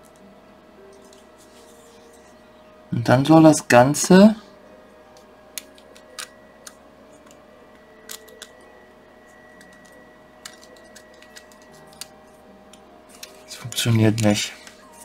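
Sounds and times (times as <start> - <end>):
faint steady hum: 0.0 - 15.0
small plastic parts clicking: 5.6 - 7.4, 8.0 - 8.6, 9.6 - 12.1.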